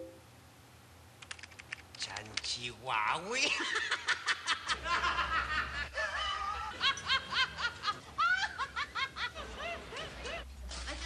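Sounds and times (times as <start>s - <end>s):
woman laughing: 3.4s - 10.5s.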